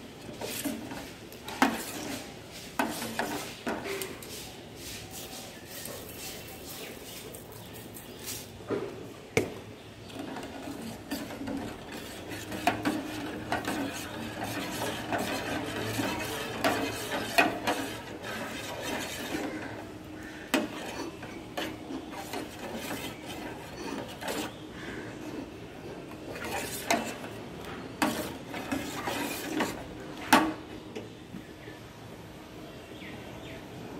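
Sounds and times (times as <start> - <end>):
metal spatula scraping metal pot: 0.2 - 3.9, 10.0 - 30.7.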